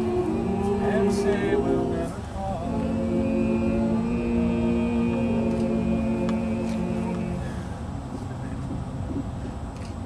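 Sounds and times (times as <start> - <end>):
choir holding sustained chord: 0.0 - 7.9.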